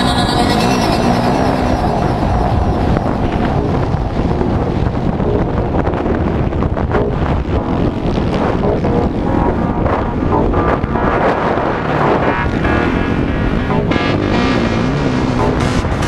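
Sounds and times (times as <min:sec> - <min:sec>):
motocross bike engine revving: 0:00.0 - 0:09.6, 0:11.1 - 0:16.0
wind buffeting microphone: 0:00.0 - 0:16.0.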